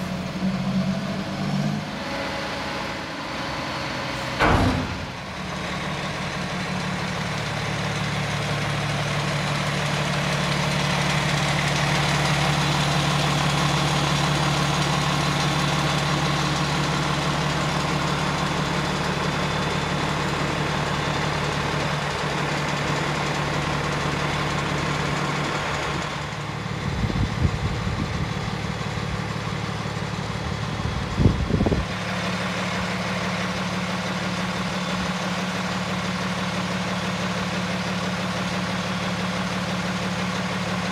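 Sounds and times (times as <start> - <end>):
diesel truck idling: 0.0 - 40.9
low thumps and rumbles: 30.6 - 32.0.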